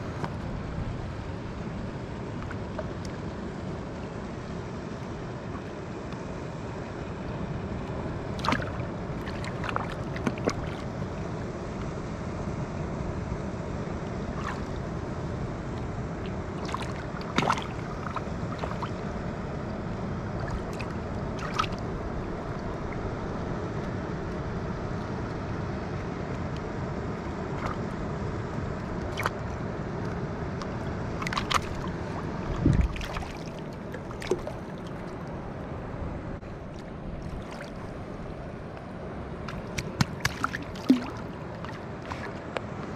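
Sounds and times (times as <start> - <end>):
shallow water sloshing: 8.3 - 11.5, 14.3 - 14.9, 16.2 - 19.4, 20.3 - 23.1, 30.6 - 35.7, 36.6 - 42.9
small splashes: 8.4 - 11.0, 14.3 - 14.8, 16.3 - 19.0, 20.4 - 21.9, 30.6 - 35.4, 36.7 - 38.5, 39.4 - 42.5.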